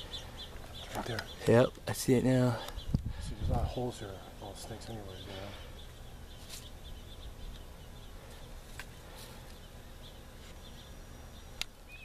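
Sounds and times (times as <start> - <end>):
faint bird chirps: 2.3 - 12.0
low wind rumble on microphone: 2.7 - 4.2.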